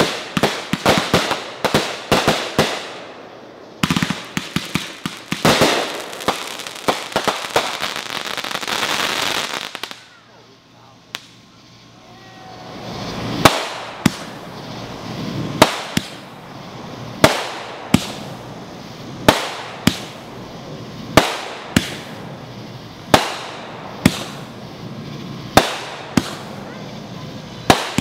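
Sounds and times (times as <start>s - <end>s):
fireworks bangs: 0.0s - 28.0s
steady hiss: 0.0s - 28.0s.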